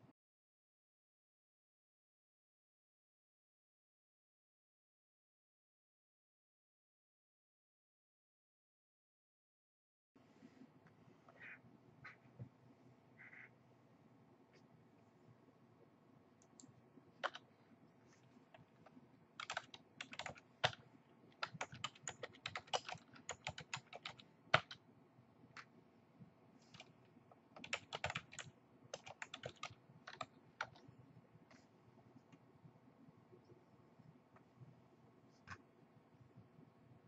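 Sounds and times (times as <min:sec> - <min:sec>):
keyboard typing clicks: 0:16.4 - 0:17.5, 0:19.4 - 0:24.8, 0:27.6 - 0:30.8.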